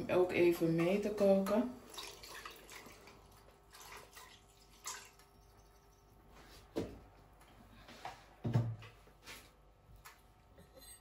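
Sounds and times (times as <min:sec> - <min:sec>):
milk pouring into water: 0:01.8 - 0:06.0.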